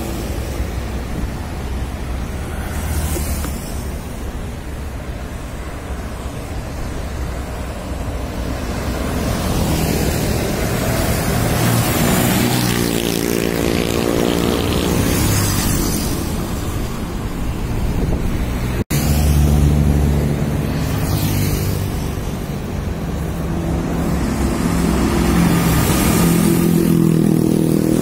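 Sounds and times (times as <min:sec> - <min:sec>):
truck diesel engine: 0:00.0 - 0:28.0
wind on microphone: 0:03.7 - 0:18.8
motorcycle engine: 0:18.7 - 0:28.0.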